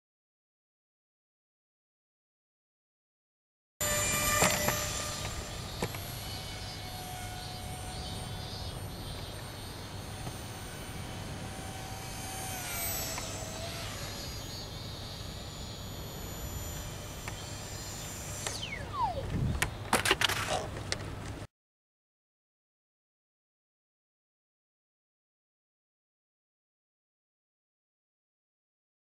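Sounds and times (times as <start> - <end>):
model plane motor whining: 3.8 - 19.4.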